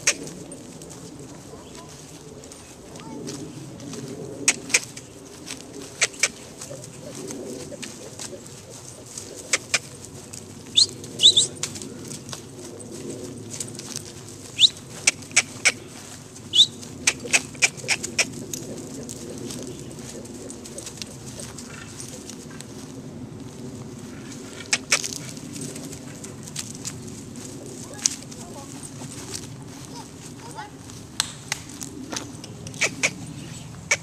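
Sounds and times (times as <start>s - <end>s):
low steady background rumble: 0.0s - 34.0s
small birds chirping: 4.4s - 11.7s, 14.4s - 22.1s, 32.0s - 34.0s.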